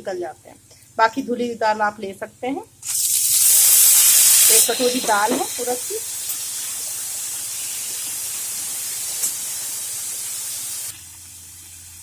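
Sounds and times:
food sizzling in hot oil: 2.8 - 12.0.

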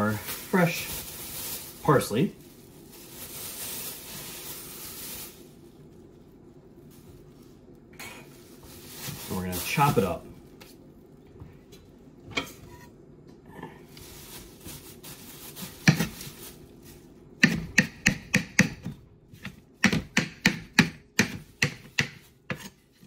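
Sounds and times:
knife chopping on cutting board: 17.4 - 22.8.

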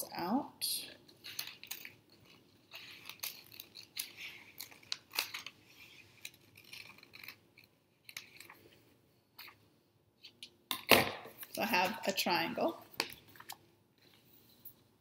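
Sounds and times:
paper rustling: 1.1 - 8.8.

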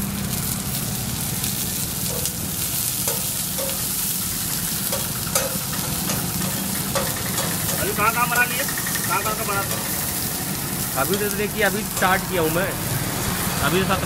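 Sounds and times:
vegetables sizzling on griddle: 0.0 - 14.0
metal spatula scraping and tapping: 2.1 - 2.4, 3.0 - 4.0, 4.8 - 8.0, 8.6 - 10.2.

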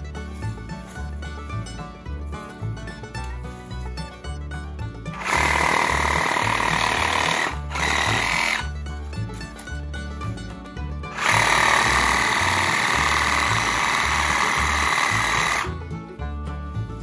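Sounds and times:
music with bass beat: 0.0 - 17.0
cordless power saw cutting: 5.1 - 8.8, 11.1 - 15.7.

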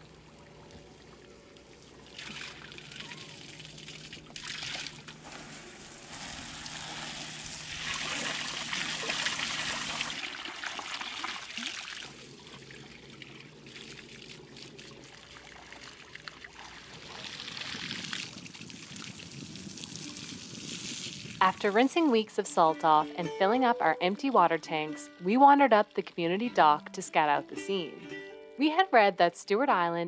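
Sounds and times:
water running into a deck fill: 0.0 - 21.8
water spraying from a hose: 1.7 - 22.0.

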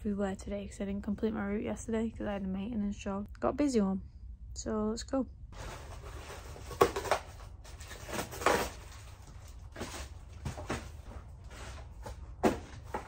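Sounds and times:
cardboard rustle: 5.6 - 13.0
cardboard boxes knocking on shelving: 9.8 - 13.0.

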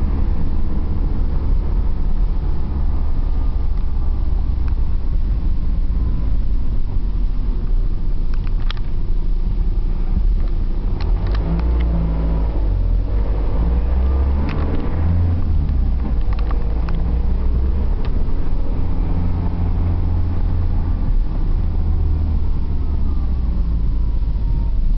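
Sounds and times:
car engine drone: 0.0 - 24.9
road rumble: 0.0 - 24.9.

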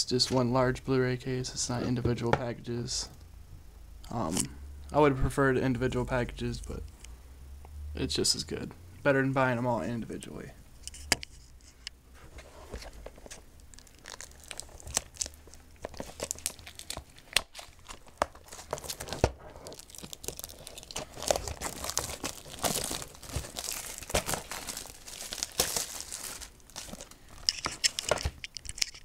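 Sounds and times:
plastic shrink wrap crinkling: 13.2 - 29.0.

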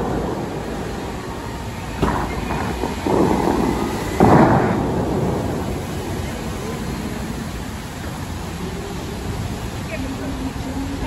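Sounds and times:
fountain water shooter booms: 0.0 - 7.5.

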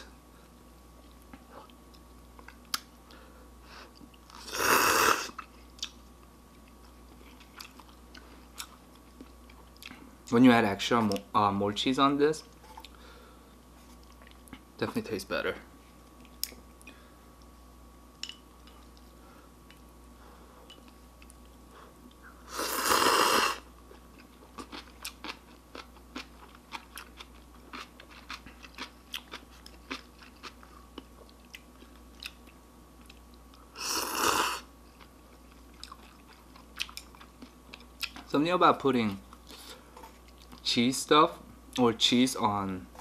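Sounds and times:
loud noodle slurps: 4.4 - 5.3, 22.5 - 23.6, 33.8 - 34.6.

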